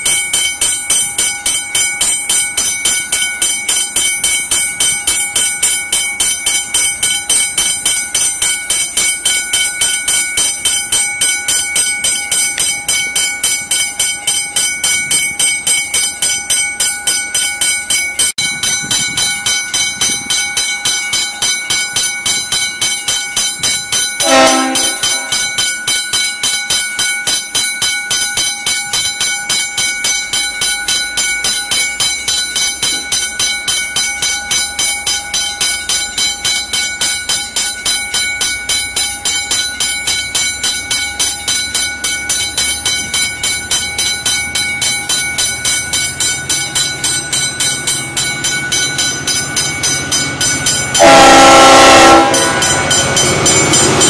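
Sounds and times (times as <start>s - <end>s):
crossing warning bell ringing: 0.0s - 54.0s
locomotive horn blast: 24.2s - 25.3s, 51.0s - 52.8s.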